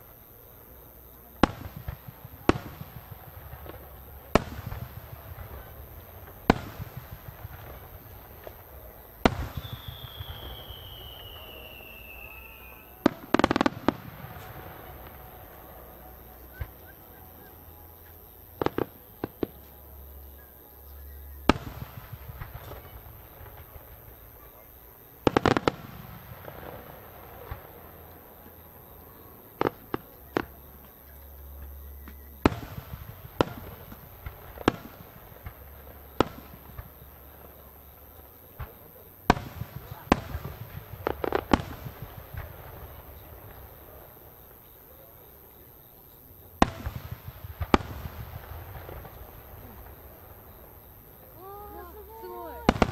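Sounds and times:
firework bursts and crackles: 0.0s - 52.9s
firework launch report: 0.0s - 52.9s
firework whistle falling in pitch: 9.5s - 13.7s.

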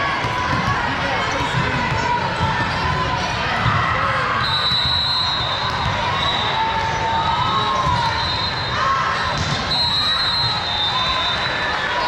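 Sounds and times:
crowd chatter: 0.0s - 12.0s
volleyball hits and bounces: 9.2s - 9.8s.

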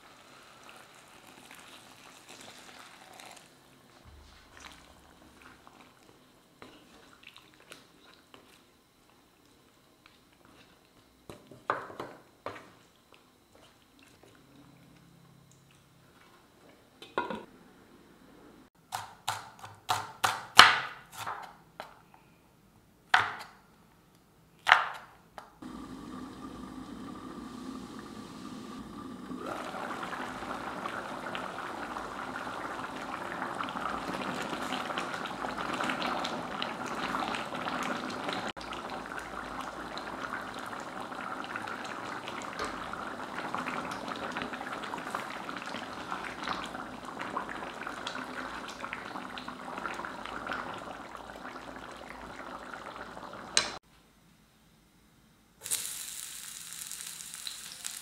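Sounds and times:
curry bubbling in a pan: 25.6s - 53.8s.

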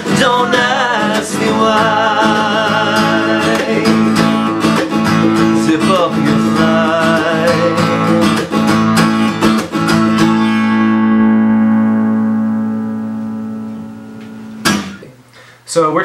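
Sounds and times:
acoustic guitar strumming: 0.0s - 15.2s
mandolin strumming: 0.0s - 15.2s.

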